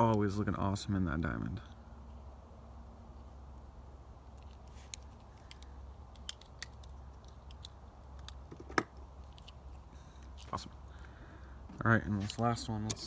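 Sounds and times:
plastic toy and packaging clicks: 4.3s - 9.6s.

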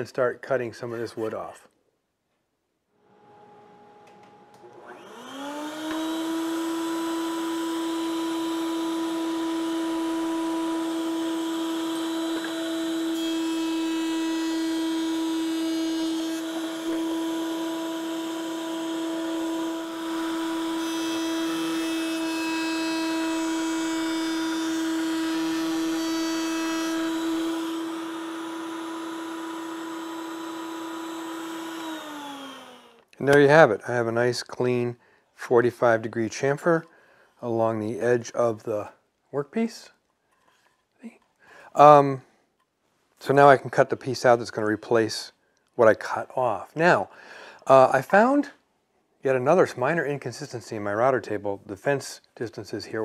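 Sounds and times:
router whine: 3.2s - 33.1s
router cutting wood: 4.0s - 33.5s.

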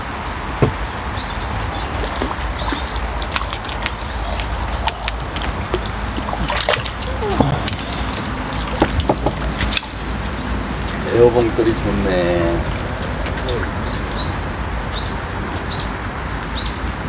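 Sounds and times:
rain falling on water: 0.0s - 17.0s
landing net in water: 0.7s - 11.1s
fish splashing at surface: 1.9s - 11.0s.

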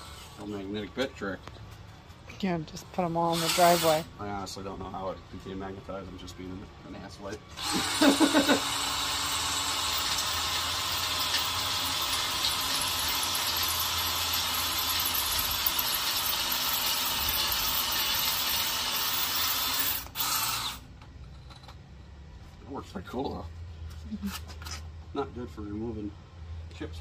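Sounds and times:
cordless drill boring into steel: 0.0s - 0.5s, 3.3s - 4.1s, 7.6s - 20.8s.

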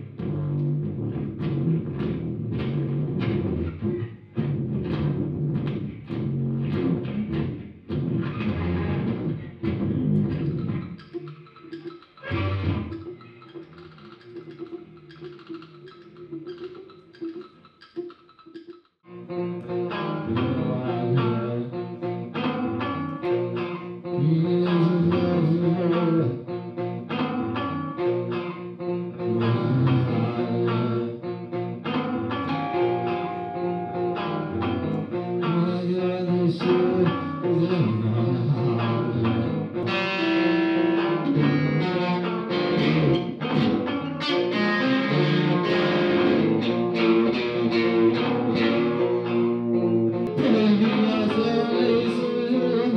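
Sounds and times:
electric guitar through effects: 0.0s - 52.9s
man's voice: 20.3s - 21.9s, 35.4s - 39.7s, 50.3s - 52.9s.

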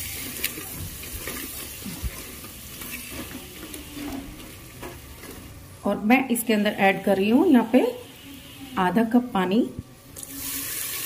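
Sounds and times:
vegetables sizzling: 0.0s - 5.6s, 6.2s - 11.0s
spatula stirring: 0.0s - 5.7s.

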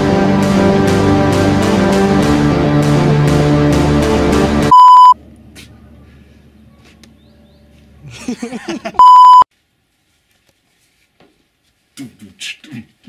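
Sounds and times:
censor bleeps: 4.7s - 5.2s, 9.0s - 9.5s.

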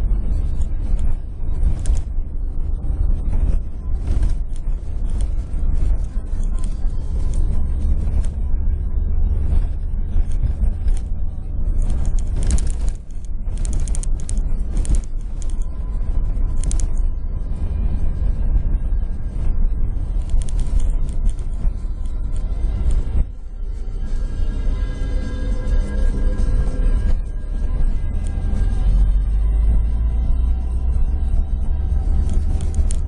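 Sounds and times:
vehicle rumble on rough track: 0.0s - 33.0s
body rattling and creaking: 9.4s - 15.6s.

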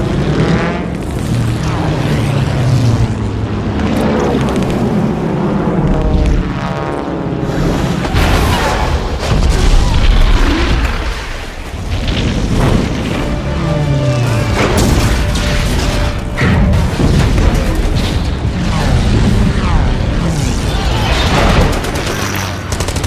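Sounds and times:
music: 12.8s - 18.9s.

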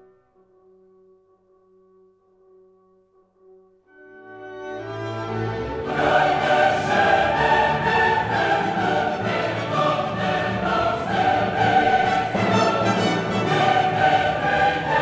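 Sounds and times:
orchestra playing: 3.9s - 15.0s
choir singing: 4.8s - 15.0s.

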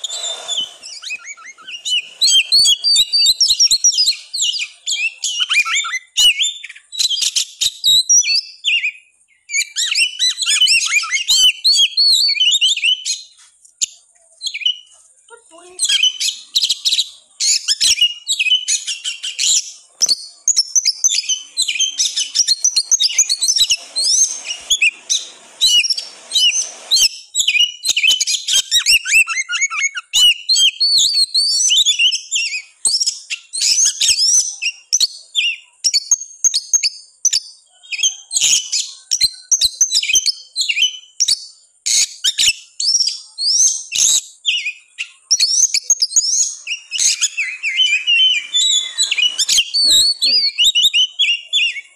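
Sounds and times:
bird singing fast whistles and chirps: 0.0s - 14.9s, 15.7s - 51.9s.

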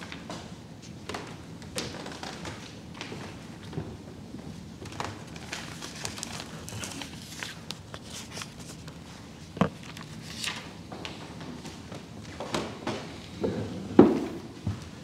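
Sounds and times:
paper rustling: 4.8s - 10.7s.

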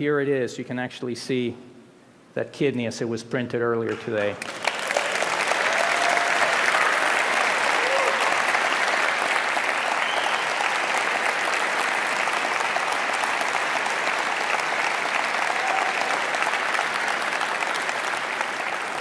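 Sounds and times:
audience applauding: 4.0s - 19.0s.

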